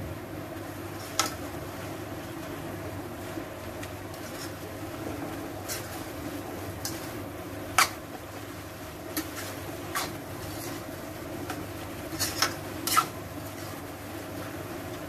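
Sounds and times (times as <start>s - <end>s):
steady low hum: 0.0s - 15.0s
spatula scraping a pan: 0.9s - 1.4s, 4.1s - 4.8s, 5.6s - 8.2s, 9.0s - 13.8s.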